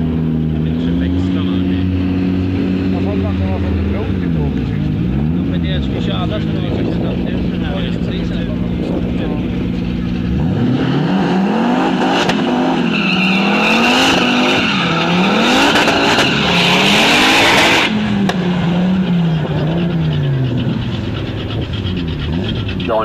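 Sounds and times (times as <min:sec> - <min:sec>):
race car engine revving: 0:00.0 - 0:23.0
tyres squealing: 0:12.4 - 0:23.0.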